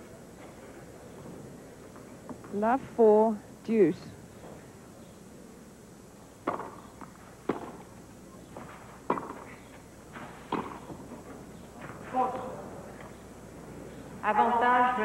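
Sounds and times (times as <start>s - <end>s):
tennis ball struck by racket: 6.4s - 7.9s, 9.1s - 9.5s, 10.3s - 11.0s.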